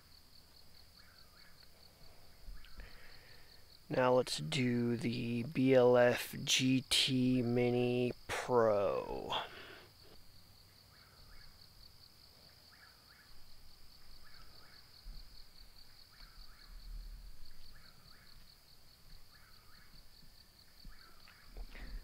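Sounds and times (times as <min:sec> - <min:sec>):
cricket trill: 0:00.0 - 0:22.0
low chirping call: 0:10.8 - 0:11.7, 0:12.7 - 0:22.0.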